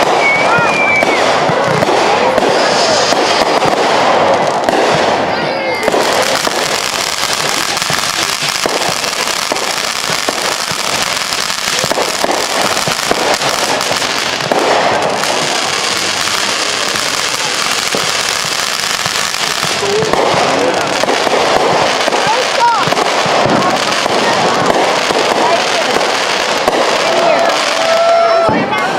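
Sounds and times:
fireworks bangs and crackling: 0:00.0 - 0:28.9.

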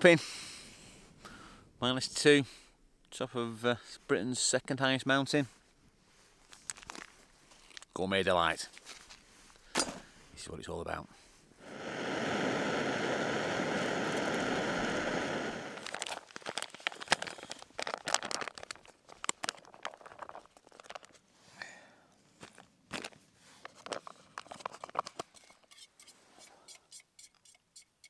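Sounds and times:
foil pouch crinkling: 0:06.4 - 0:08.0, 0:15.8 - 0:21.2, 0:22.4 - 0:25.4
gas stove hissing: 0:11.6 - 0:15.9.

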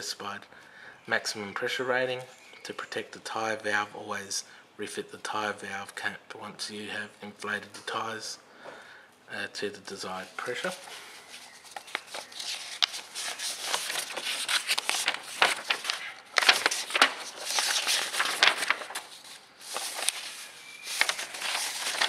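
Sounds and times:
paper pages rustling: 0:10.1 - 0:22.0.

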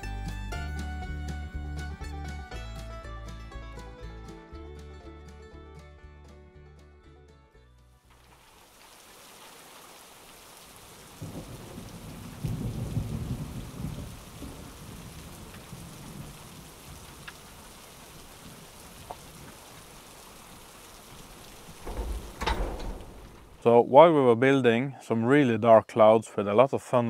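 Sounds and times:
steady rain hiss: 0:08.0 - 0:23.8
rolling thunder: 0:11.1 - 0:17.2, 0:21.6 - 0:23.6.

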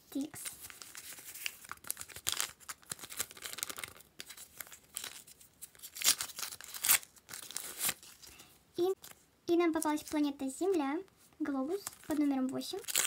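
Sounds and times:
paper packets crinkling: 0:00.2 - 0:09.2, 0:11.7 - 0:13.0
paper ripping: 0:00.4 - 0:08.3, 0:11.8 - 0:13.0.

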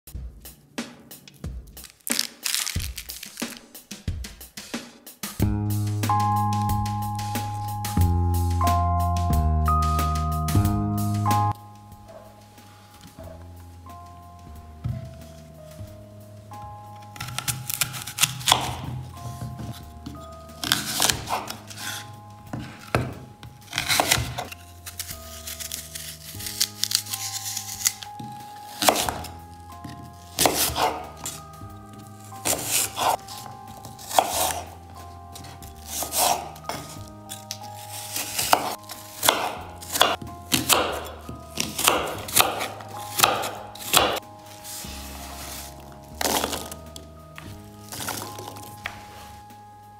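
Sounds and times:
background music with held notes: 0:00.1 - 0:49.9
knife chopping on wooden board: 0:17.2 - 0:19.8, 0:20.6 - 0:24.6, 0:27.8 - 0:34.8, 0:35.4 - 0:37.0, 0:38.0 - 0:44.2, 0:46.2 - 0:46.8.

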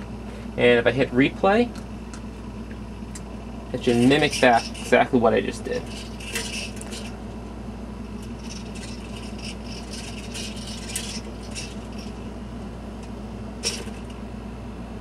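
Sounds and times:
steady electrical hum: 0:00.0 - 0:15.0
servos whirring and ticking: 0:01.7 - 0:07.2, 0:08.2 - 0:12.2.

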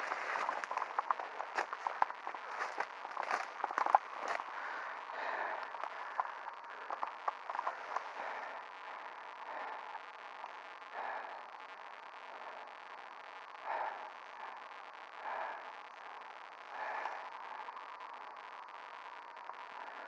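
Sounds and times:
footsteps on forest floor: 0:00.0 - 0:08.2
twigs cracking: 0:00.0 - 0:08.7
tape hiss and whine: 0:00.0 - 0:20.0.

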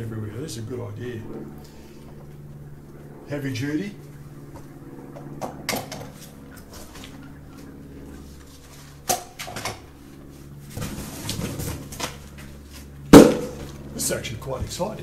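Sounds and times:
steady low hum: 0:00.0 - 0:15.0
sharp knock: 0:13.2 - 0:13.6.

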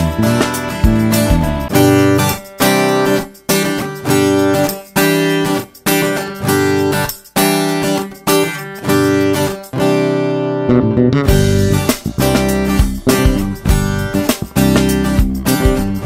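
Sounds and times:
acoustic guitar strumming: 0:00.0 - 0:16.0.

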